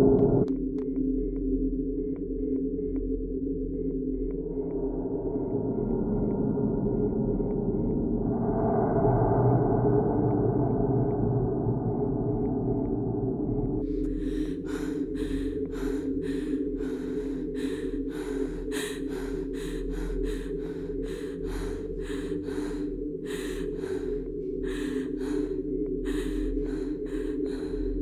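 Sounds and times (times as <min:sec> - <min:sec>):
low steady music drone: 0:00.0 - 0:28.0
woman breathing in rapid gasps: 0:13.8 - 0:28.0.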